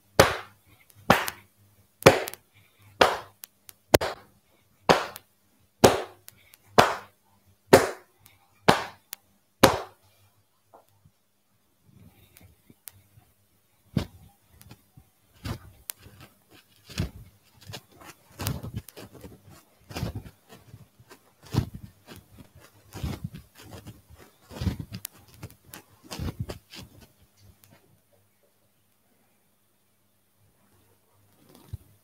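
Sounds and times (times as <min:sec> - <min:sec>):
hands slapping body: 0:00.2 - 0:01.4, 0:02.0 - 0:02.4, 0:03.0 - 0:04.2, 0:04.9 - 0:07.1, 0:07.7 - 0:08.1, 0:08.7 - 0:10.0.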